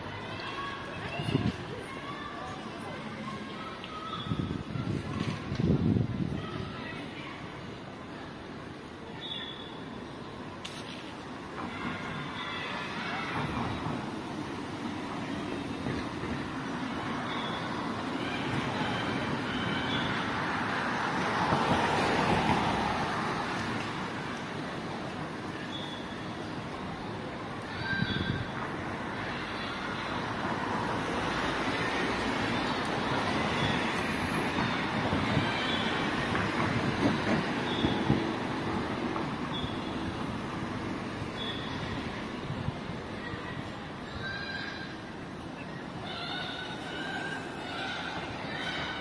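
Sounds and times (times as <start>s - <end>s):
street traffic: 0.0s - 49.0s
passing vehicles: 12.8s - 44.1s.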